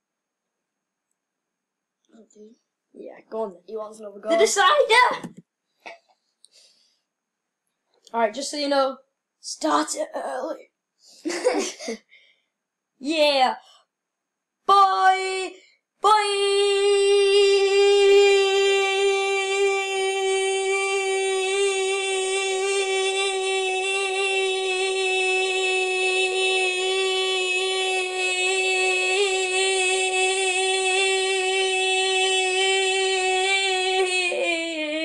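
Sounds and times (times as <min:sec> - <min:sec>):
boy holding a long high note: 0:16.2 - 0:35.0.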